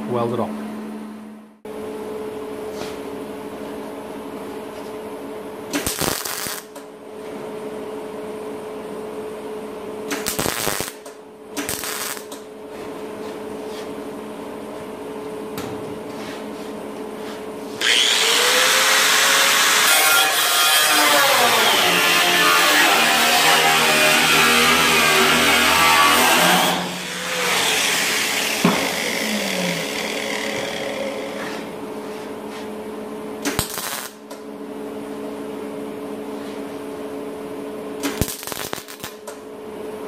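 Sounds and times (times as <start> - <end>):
tack welding crackle: 5.7 - 6.9, 10.1 - 12.4, 18.9 - 29.0, 33.4 - 34.4, 38.0 - 39.4.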